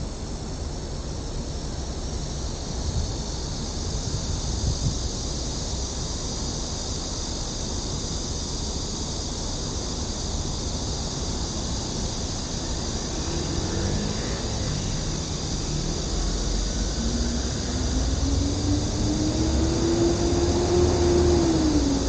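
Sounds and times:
cicadas buzzing: 0:00.0 - 0:22.0
wind on microphone: 0:04.1 - 0:05.1
distant traffic: 0:10.8 - 0:22.0.

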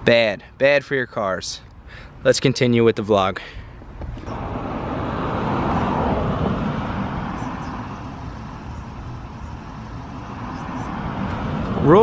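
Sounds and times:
low traffic rumble: 0:00.0 - 0:12.0
motor vehicle passing: 0:03.8 - 0:12.0.

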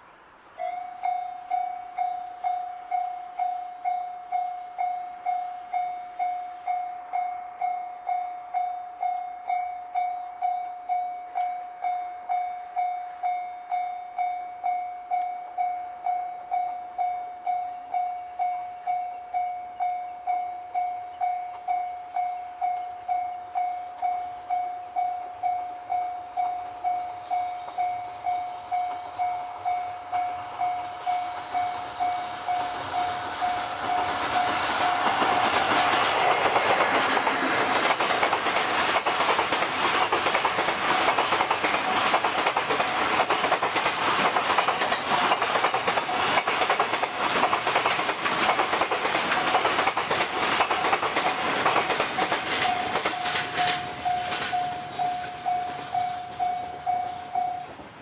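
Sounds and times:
freight train passing: 0:00.0 - 0:58.0
level-crossing warning bell: 0:00.6 - 0:57.9
wheels clattering over rail joints: 0:31.4 - 0:56.5.

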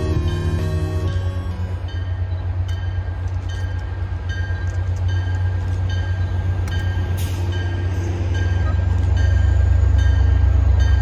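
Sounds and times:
diesel locomotive rumble: 0:00.0 - 0:11.0.

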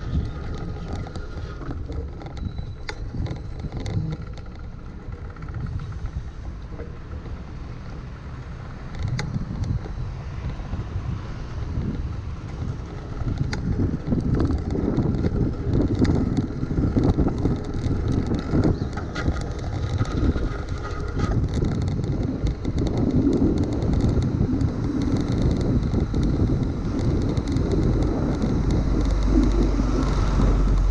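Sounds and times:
wind buffeting microphone: 0:00.0 - 0:30.9
bicycle tyres rushing on wet road: 0:05.6 - 0:30.9
sharp ticks: 0:08.8 - 0:10.7, 0:11.8 - 0:30.9.

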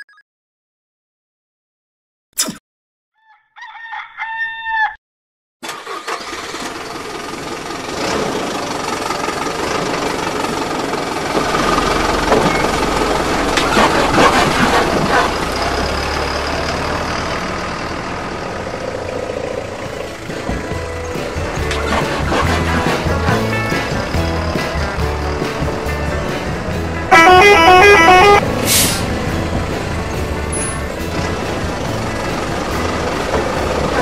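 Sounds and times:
rooster crowing: 0:03.2 - 0:05.0
truck engine running: 0:05.7 - 0:34.0.

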